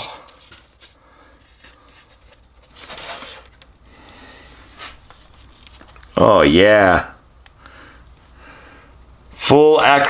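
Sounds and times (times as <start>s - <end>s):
muffler rubbing against foam packaging: 4.5s - 6.1s.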